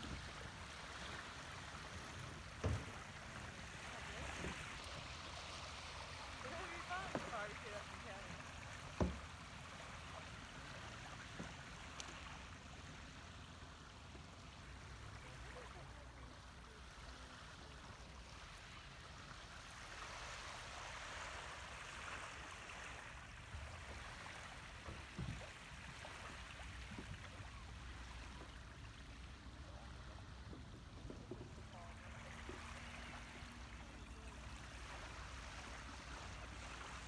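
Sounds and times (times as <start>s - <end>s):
water washing along shore: 0.0s - 37.0s
soft knocks: 2.6s - 3.0s, 9.0s - 9.3s.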